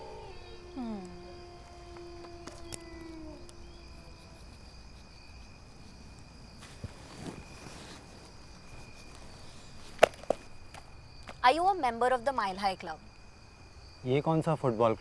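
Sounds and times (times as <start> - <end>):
long held tone: 0.0 - 4.4
crickets chirring: 0.0 - 15.0
soft paper rustle: 6.6 - 10.4.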